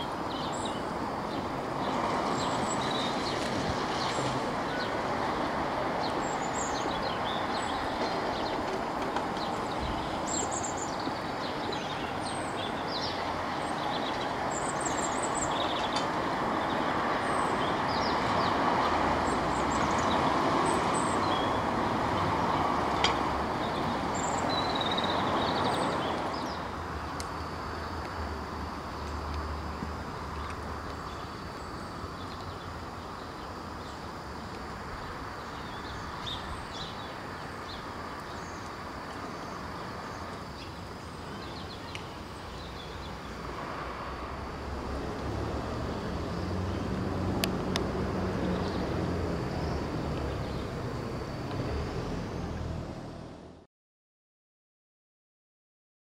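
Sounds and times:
birds chirping: 0.0 - 18.6, 23.6 - 26.8
vehicle rumble: 42.4 - 53.6.

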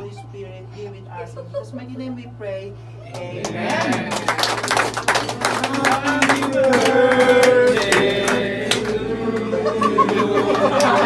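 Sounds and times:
people clapping: 3.1 - 11.0
people singing together: 3.2 - 4.4, 5.3 - 11.0.

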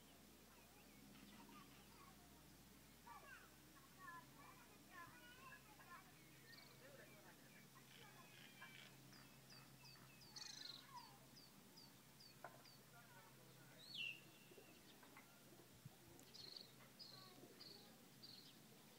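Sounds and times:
bird chirps: 6.0 - 12.8, 13.4 - 15.4, 16.2 - 18.6.

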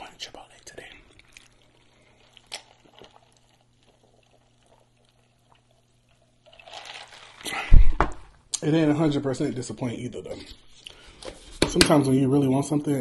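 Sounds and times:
breathy liquid rush: 6.5 - 8.0
man swallowing: 7.4 - 8.6.

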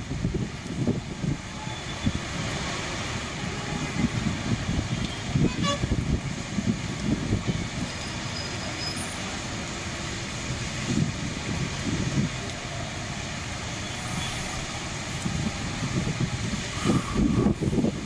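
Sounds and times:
road traffic: 0.0 - 18.0
vehicle horn toot: 5.4 - 5.9.

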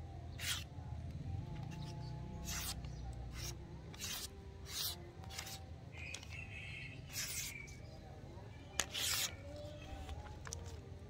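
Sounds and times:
machete slicing through paper: 0.4 - 0.7, 2.4 - 5.6, 7.1 - 7.7, 8.8 - 10.2.

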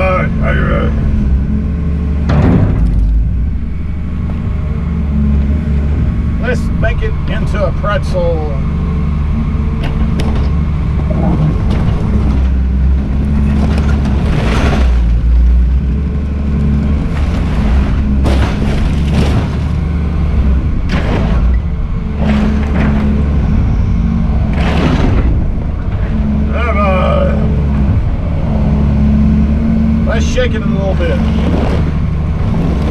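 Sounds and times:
excavator diesel engine running: 0.0 - 32.9
metal and plastic crunching: 2.2 - 4.1, 9.7 - 23.6, 24.3 - 26.5.

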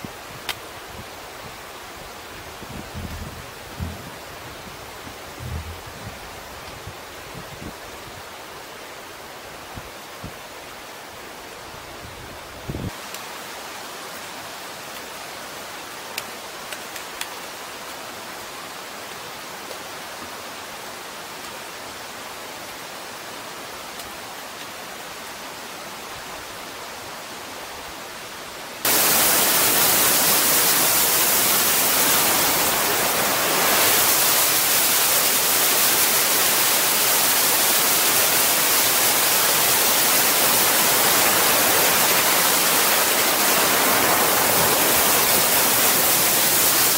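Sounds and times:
creek water flowing: 0.0 - 11.9, 12.9 - 46.9
water pouring over rock cascade: 28.9 - 46.9.

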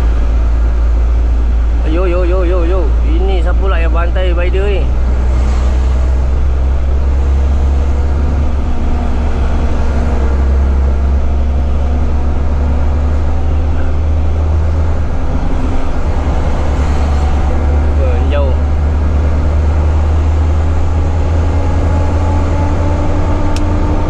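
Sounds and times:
truck diesel engine drone: 0.0 - 24.0.

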